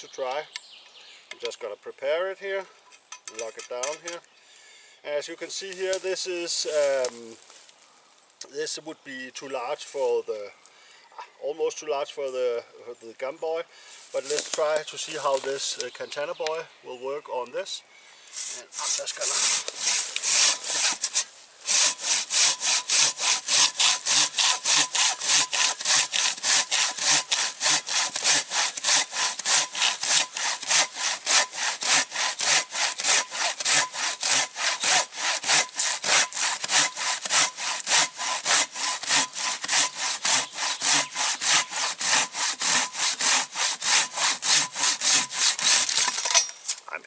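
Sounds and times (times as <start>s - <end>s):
handsaw cutting through log: 18.4s - 46.4s.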